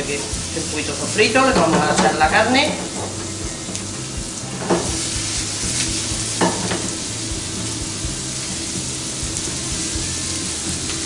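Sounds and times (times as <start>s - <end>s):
vegetables sizzling in oil: 0.0s - 11.0s
utensil knocking against pan: 1.4s - 3.4s, 4.5s - 5.0s, 6.4s - 7.0s.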